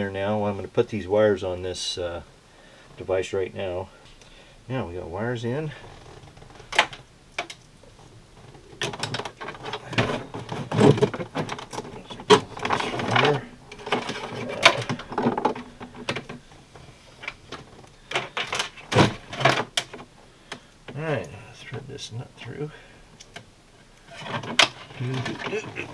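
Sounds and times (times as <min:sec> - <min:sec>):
rustling of plastic and wiring: 0:05.6 - 0:21.9, 0:23.1 - 0:25.9.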